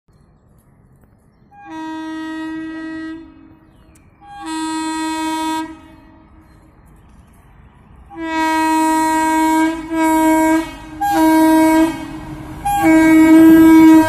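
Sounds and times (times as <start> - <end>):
electric locomotive horn blasts: 1.6 - 6.4, 8.1 - 14.0.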